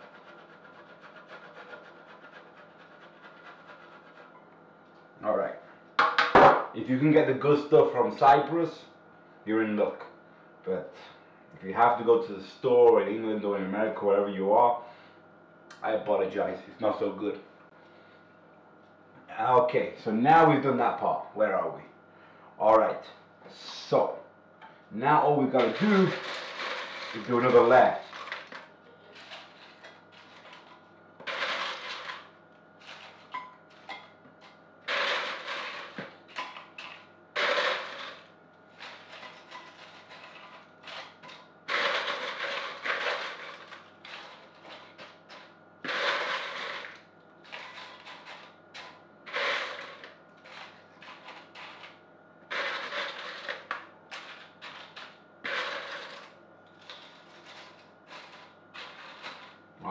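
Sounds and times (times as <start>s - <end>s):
tortilla chips crunching: 25.7s - 33.8s.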